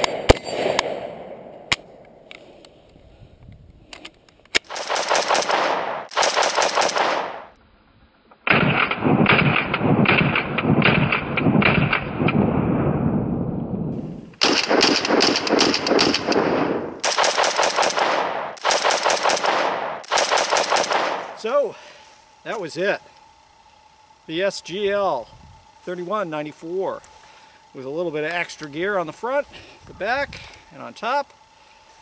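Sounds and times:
rifle firing rapid shots: 4.6 - 7.6, 8.5 - 12.4, 14.4 - 21.4.

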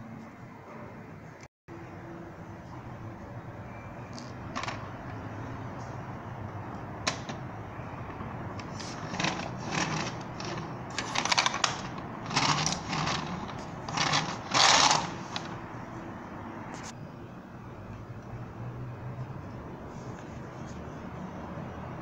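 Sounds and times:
toy motorbike wheels whirring: 8.6 - 15.6.

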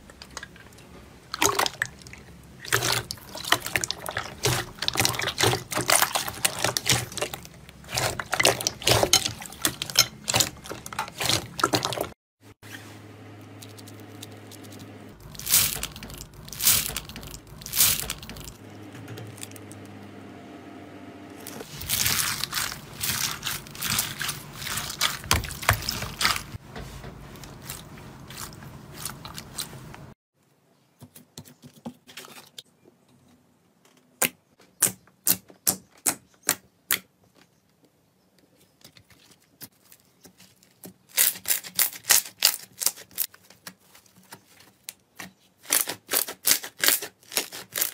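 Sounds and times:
slime crunching and crackling: 1.3 - 12.2, 13.6 - 18.6, 21.4 - 26.6, 27.3 - 30.1, 39.0 - 47.9.

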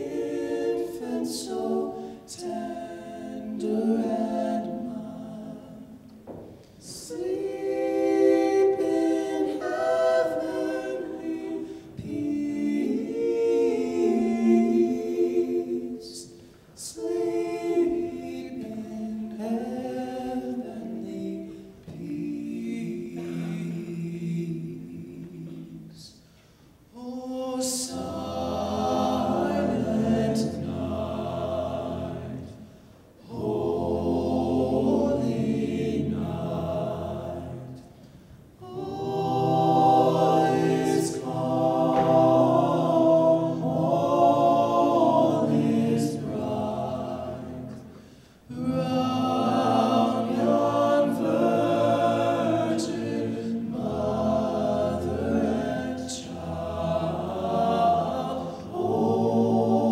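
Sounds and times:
men singing a cappella: 0.0 - 6.0, 6.8 - 26.2, 27.0 - 32.6, 33.2 - 37.9, 38.6 - 59.9.

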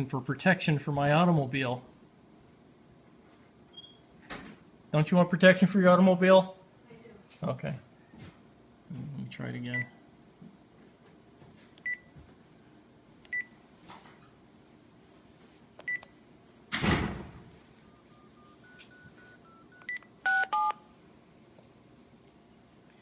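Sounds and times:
phone key beeps: 15.8 - 16.1, 17.9 - 20.8
faint dialing tones: 17.8 - 20.8
touch-tone tones from speakerphone: 17.8 - 20.8.

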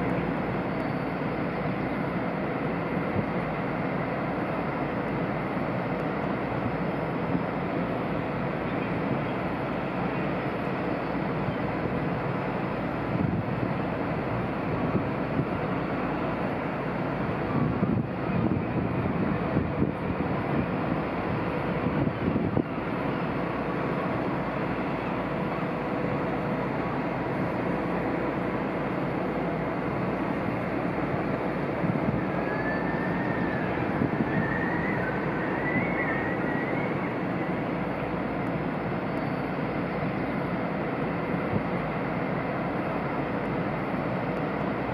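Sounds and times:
ship machinery rumbling: 0.0 - 44.9.

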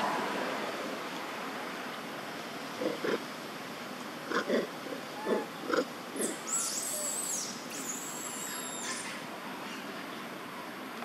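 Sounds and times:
macaques grunting: 2.7 - 3.3, 4.2 - 7.2
high thin whistling calls: 6.2 - 9.2.

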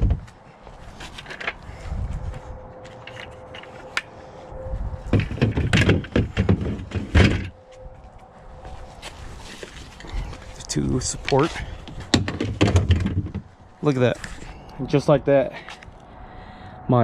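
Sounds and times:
parts knocking on plastic hull: 5.1 - 7.5, 12.1 - 13.5.

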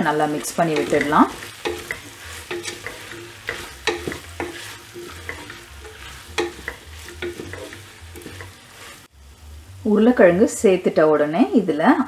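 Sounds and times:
light sizzle: 0.0 - 12.0
spoon knocking and scraping pot: 0.3 - 8.7.

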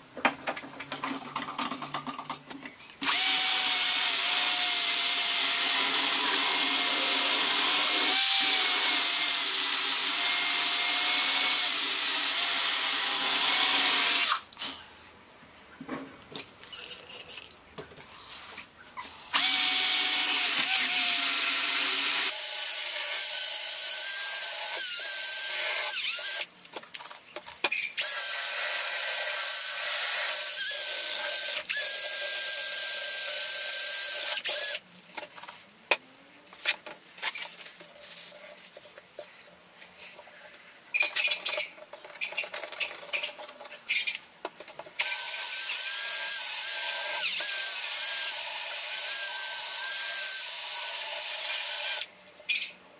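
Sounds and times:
cordless drill polishing metal: 3.0 - 14.4, 19.4 - 26.4, 45.0 - 52.1.

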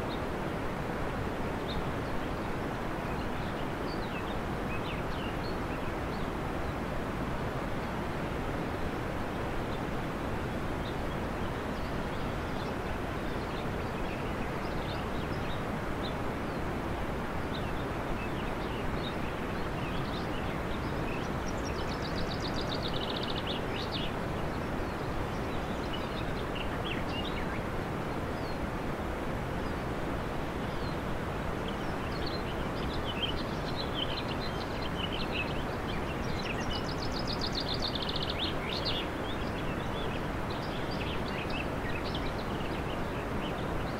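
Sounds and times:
faint bird chirps: 17.4 - 27.7, 30.6 - 43.9.

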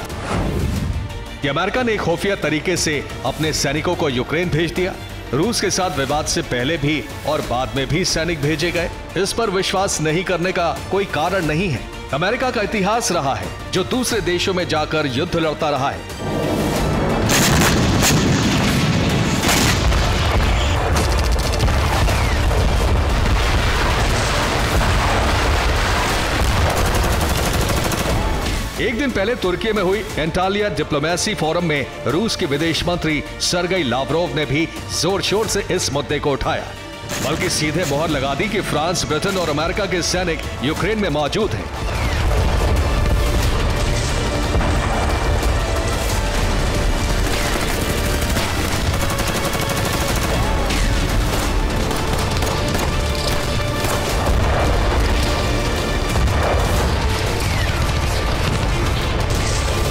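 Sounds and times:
dramatic background music: 0.0 - 59.9
deep rumble of explosions: 16.2 - 28.8, 41.6 - 49.1, 50.2 - 59.9
gunfire: 16.6 - 28.8, 41.8 - 59.9.

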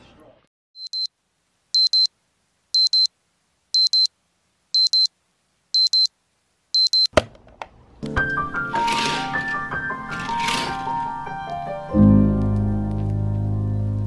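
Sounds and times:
digital alarm clock beeping: 0.8 - 1.1, 1.8 - 2.1, 2.8 - 3.1, 3.8 - 4.1, 4.8 - 5.1, 5.8 - 6.1, 6.8 - 7.1.

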